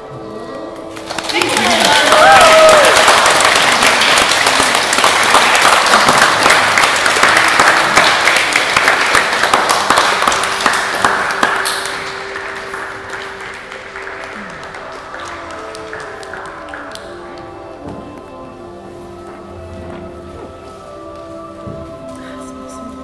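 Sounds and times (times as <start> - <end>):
people clapping: 0.8 - 18.0.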